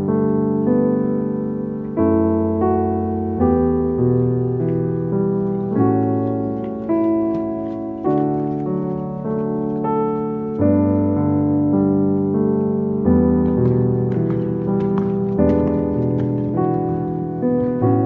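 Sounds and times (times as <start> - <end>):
piano music: 0.0 - 18.0.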